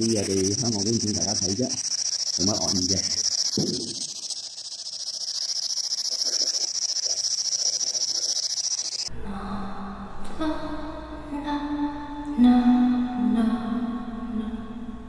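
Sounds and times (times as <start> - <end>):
pulsing radio static: 0.0 - 9.1
faint broken voice fragments: 0.0 - 9.3.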